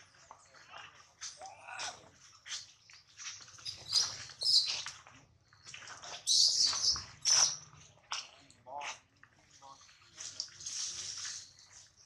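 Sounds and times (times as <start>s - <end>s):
baby monkey shrill squeals: 3.6s - 4.8s, 6.3s - 7.6s.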